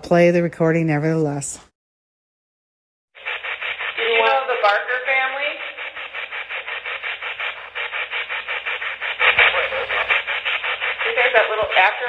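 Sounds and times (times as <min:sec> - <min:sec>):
radio static pulses: 0:03.2 - 0:12.0.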